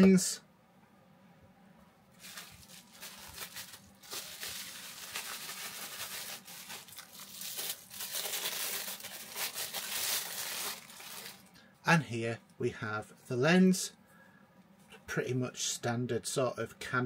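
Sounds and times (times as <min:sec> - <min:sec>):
packaging crinkling and rustling: 0:02.2 - 0:11.6.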